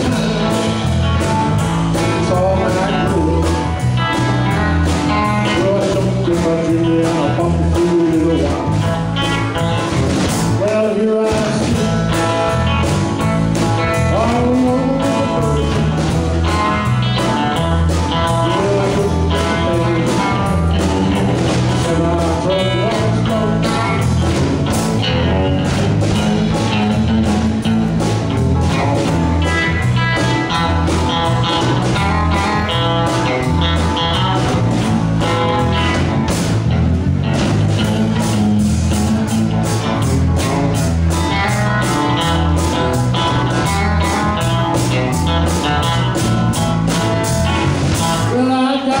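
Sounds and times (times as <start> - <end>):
man singing: 0.0 - 1.0, 1.9 - 9.6, 10.5 - 12.2, 13.9 - 24.4, 25.0 - 27.7, 47.9 - 49.0
live blues-rock band playing: 0.0 - 49.0.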